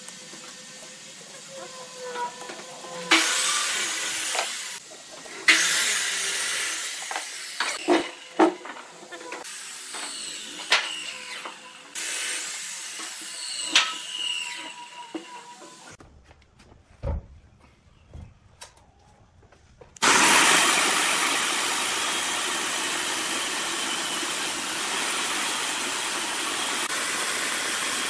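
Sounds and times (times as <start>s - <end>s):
loud hissing noise: 3.1s - 7.8s.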